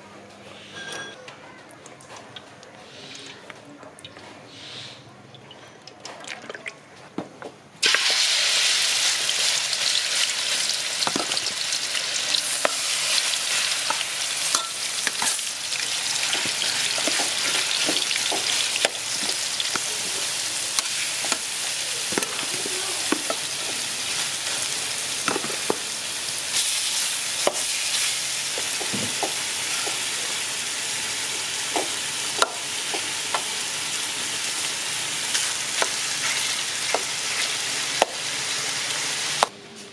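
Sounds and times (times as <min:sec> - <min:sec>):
meat sizzling in hot oil: 0:07.8 - 0:39.5.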